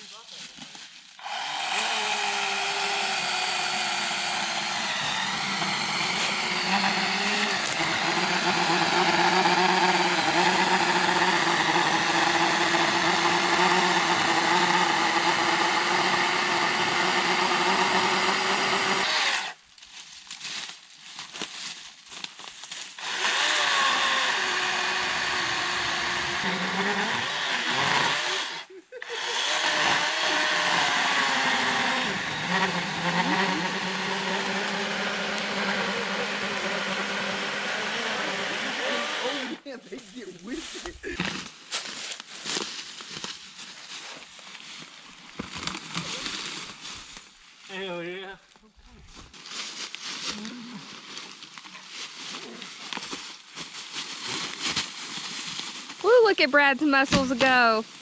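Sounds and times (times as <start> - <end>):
electric chainsaw cutting log: 1.2 - 19.6, 22.9 - 39.6, 56.2 - 58.0.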